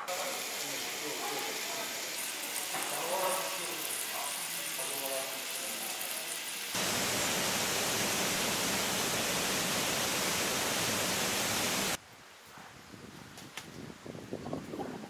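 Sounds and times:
waterfall rushing: 6.7s - 12.0s.

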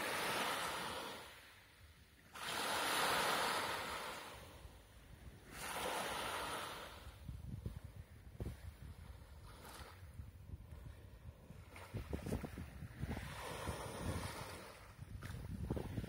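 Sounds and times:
waves breaking on shore: 0.0s - 16.0s
wind buffeting microphone: 6.9s - 16.0s.

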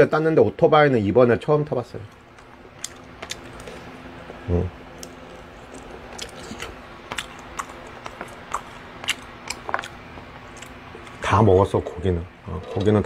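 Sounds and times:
faint steady hum: 0.0s - 13.0s
man eating with clicks and smacks: 2.0s - 11.3s.

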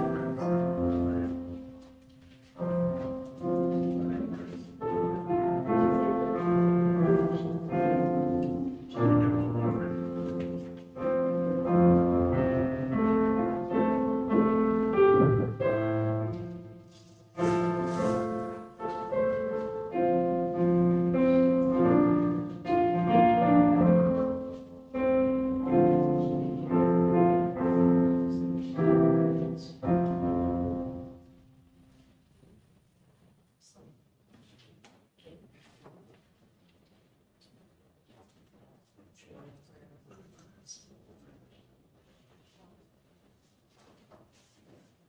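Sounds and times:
solo piano piece: 0.0s - 32.0s.

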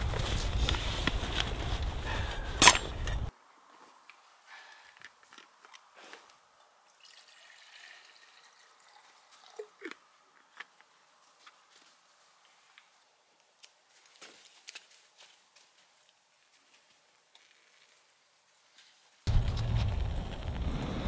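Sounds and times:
water trickling into pot: 7.0s - 9.7s.

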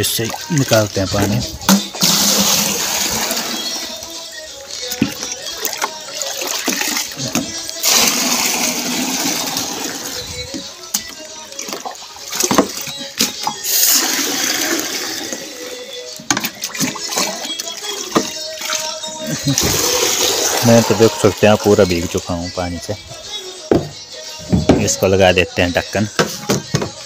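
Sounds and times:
water splashing and gushing: 0.0s - 4.2s, 4.8s - 10.6s, 11.4s - 22.2s
plastic bucket knocking: 12.4s - 13.4s, 23.7s - 25.0s, 26.2s - 27.0s.

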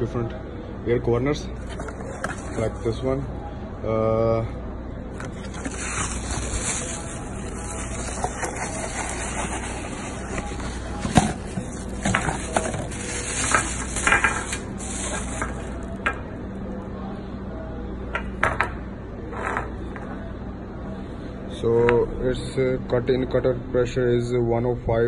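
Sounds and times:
steady hiss and low hum: 0.0s - 25.0s
cardboard and plastic bag rustling: 1.6s - 2.9s, 5.2s - 16.0s.

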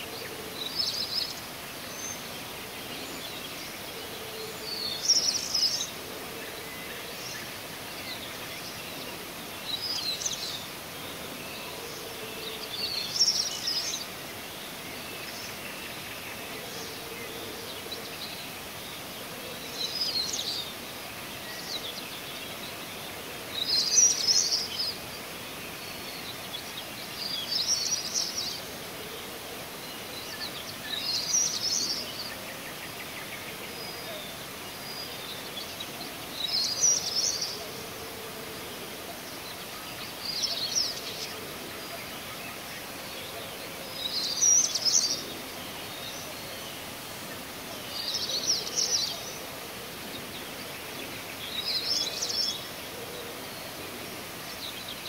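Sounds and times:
songbird singing: 0.0s - 55.0s
steady outdoor hiss: 0.0s - 55.0s.

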